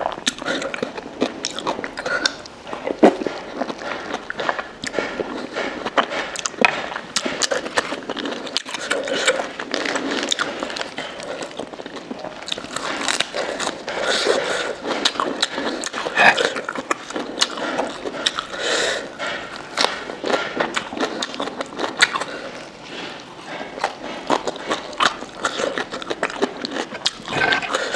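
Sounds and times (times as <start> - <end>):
chewing crunchy lettuce: 0.0 - 27.9
wet mouth sounds: 14.0 - 18.6, 23.8 - 27.9.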